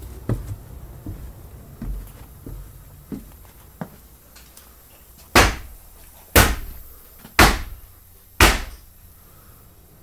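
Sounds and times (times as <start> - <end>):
loud bangs: 5.4 - 5.8, 6.4 - 8.9.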